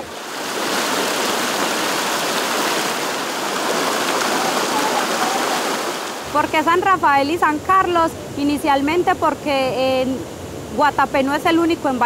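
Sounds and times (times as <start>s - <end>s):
river water rushing over boulders: 0.0s - 8.4s.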